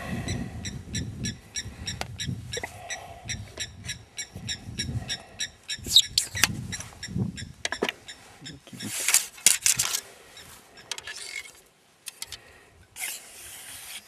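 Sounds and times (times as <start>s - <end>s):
bird chirping: 0.2s - 8.9s.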